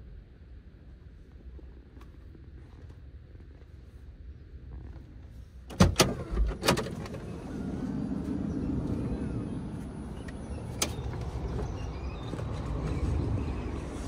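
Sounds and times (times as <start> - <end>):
car door latch clunks: 5.7 - 7.2.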